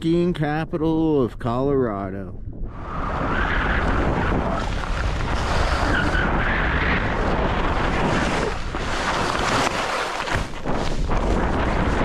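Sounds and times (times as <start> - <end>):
wind on microphone: 0.6 - 12.0
skis scraping over snow: 3.0 - 12.0.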